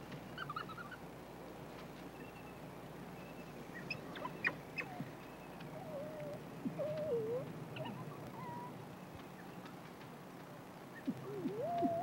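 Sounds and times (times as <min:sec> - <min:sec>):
wild dog pup whines: 0:05.7 - 0:08.8, 0:11.1 - 0:12.0.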